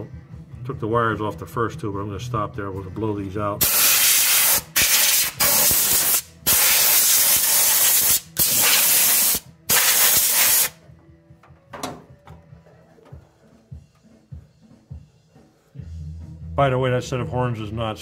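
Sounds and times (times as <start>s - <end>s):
air blow gun hissing: 3.6s - 10.8s.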